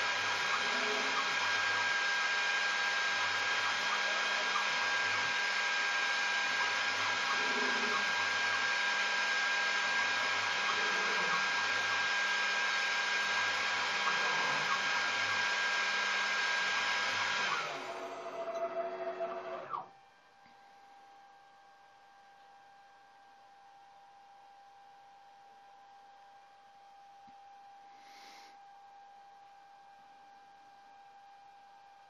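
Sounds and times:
spindle whine: 0.0 - 19.9
stepper motor tones: 0.0 - 19.9.

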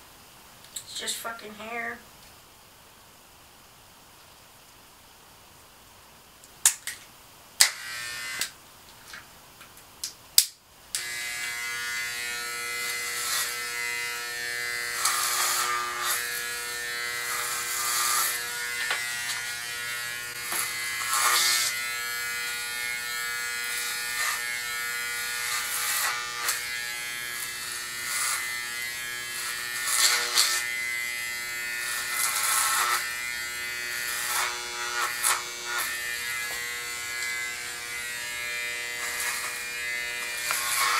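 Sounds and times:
electric hair clipper buzzing: 7.6 - 8.6, 10.9 - 40.9.

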